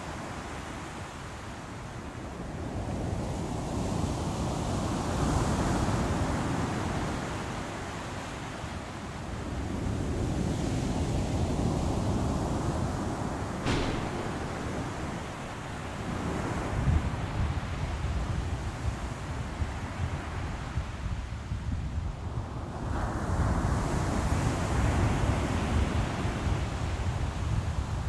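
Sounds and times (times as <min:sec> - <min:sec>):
wind: 0:00.0 - 0:28.0
heavy waves surging: 0:11.6 - 0:18.1.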